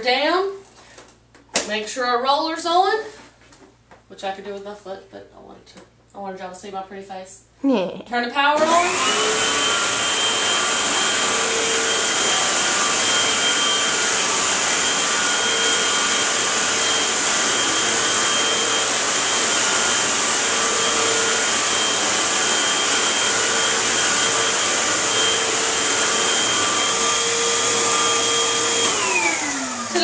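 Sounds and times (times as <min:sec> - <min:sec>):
vacuum cleaner running: 0:08.4 - 0:30.0.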